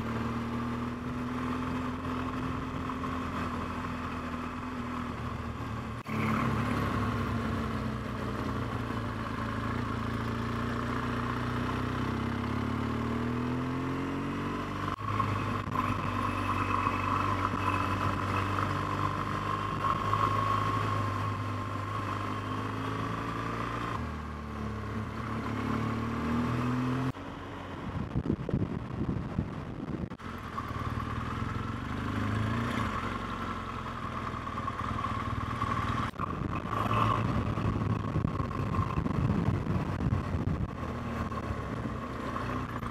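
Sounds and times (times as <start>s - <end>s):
motorcycle engine running: 0.0s - 42.9s
road noise: 0.0s - 42.9s
wind rush: 27.8s - 30.2s, 36.2s - 42.0s.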